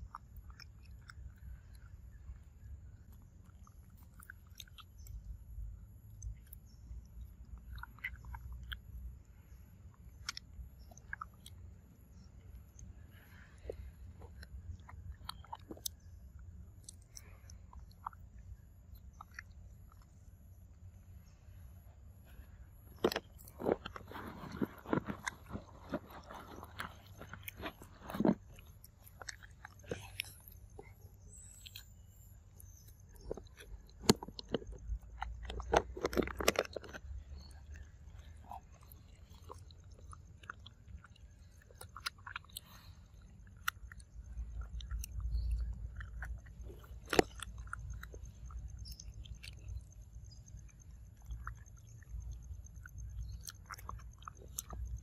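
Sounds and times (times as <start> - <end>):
monkey biting and chewing fruit: 22.3 - 55.0.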